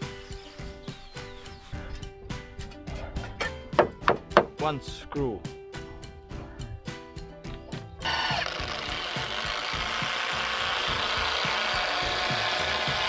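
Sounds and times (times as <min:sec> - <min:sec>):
cordless drill driving screw into wood: 0:08.0 - 0:13.0.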